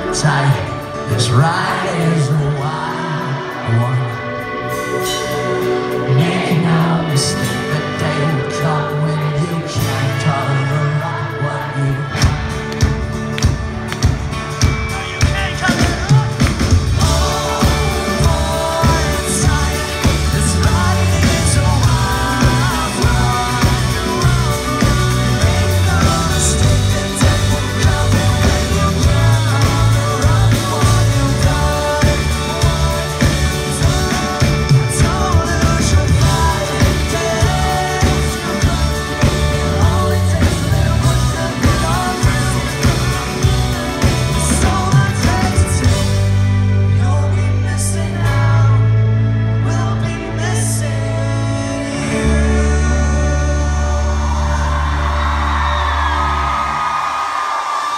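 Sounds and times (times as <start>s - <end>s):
live pop-punk band playing: 0.0s - 57.9s
person singing lead vocal: 0.0s - 57.9s.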